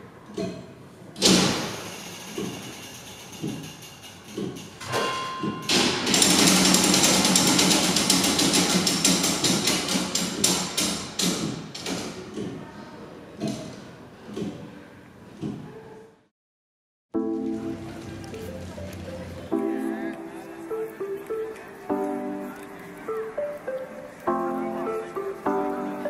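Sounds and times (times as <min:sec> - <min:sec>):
clock mechanism clattering: 0:01.7 - 0:12.2.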